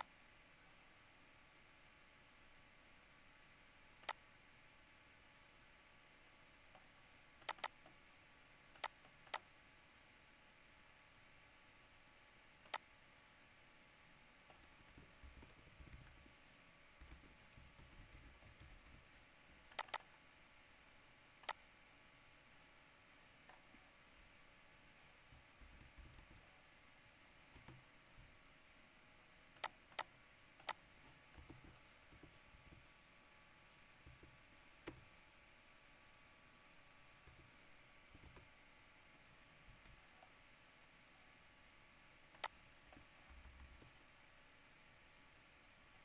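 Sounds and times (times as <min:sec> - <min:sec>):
faint room hiss: 0:00.0 - 0:46.0
mouse and keyboard clicks: 0:06.7 - 0:08.0, 0:08.8 - 0:09.5, 0:19.7 - 0:20.1, 0:29.6 - 0:32.9, 0:42.3 - 0:44.1.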